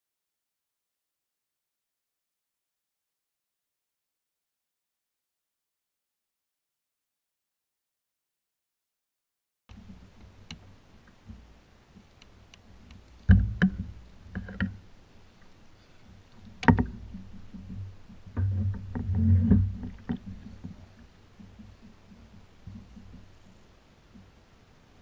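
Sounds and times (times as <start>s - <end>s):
knocks on plastic kayak: 13.3s - 13.9s
low handling rumble: 16.2s - 23.4s.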